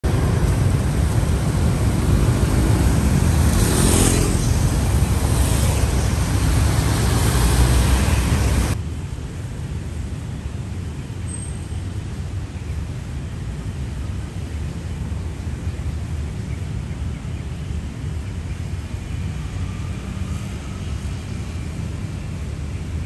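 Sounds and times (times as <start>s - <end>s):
traffic on a wet road: 0.0s - 23.0s
vehicle hissing past: 1.9s - 8.8s.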